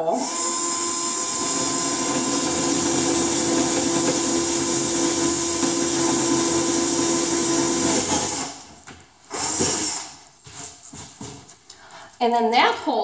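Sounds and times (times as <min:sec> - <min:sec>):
cordless drill boring wood: 0:00.0 - 0:08.7, 0:09.3 - 0:10.2.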